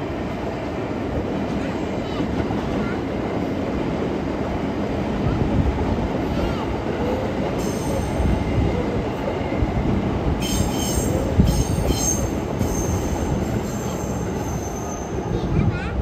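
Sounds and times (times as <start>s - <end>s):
train rumble: 0.0s - 16.0s
high wheel squeal: 10.4s - 15.2s.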